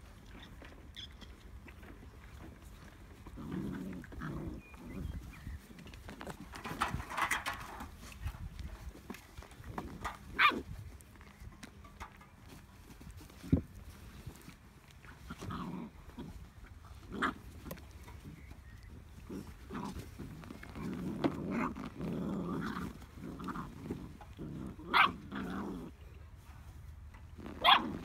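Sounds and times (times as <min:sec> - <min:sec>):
puppy growling: 0:00.2 - 0:08.0, 0:15.1 - 0:26.1, 0:27.4 - 0:28.0.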